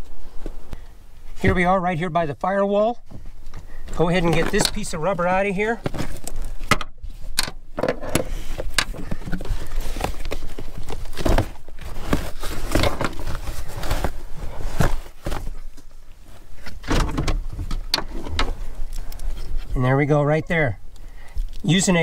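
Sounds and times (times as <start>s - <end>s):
rubber trim scraping and rustling: 4.0s - 19.8s.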